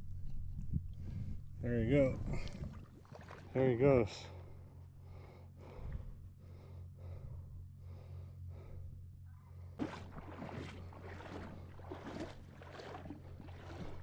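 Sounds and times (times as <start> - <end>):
low steady hum: 0.0 - 14.0
person breathing quickly: 4.4 - 9.8.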